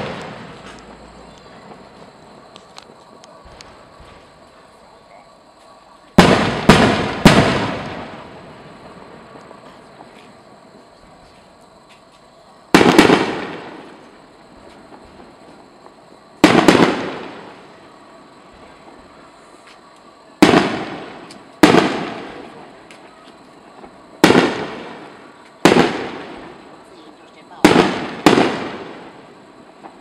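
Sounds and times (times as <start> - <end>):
firework shells bursting: 0.0 - 4.4, 6.2 - 10.2, 12.7 - 17.8, 20.4 - 26.8, 27.6 - 30.0.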